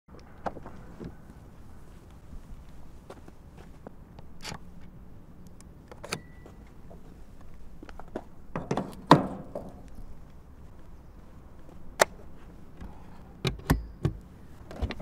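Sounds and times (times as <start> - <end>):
short beep: 6.2 - 6.6.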